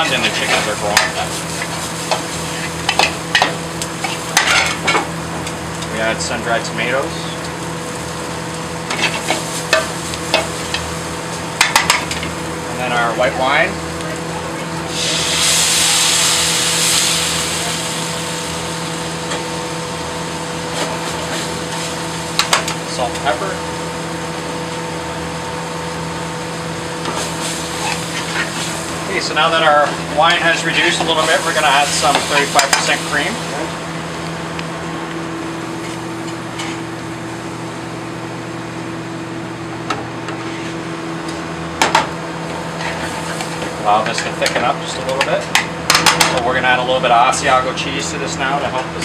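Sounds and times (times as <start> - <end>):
wine sizzling in a hot pan: 0.0 - 38.4, 41.0 - 49.0
kitchen ventilation hum: 0.0 - 49.0.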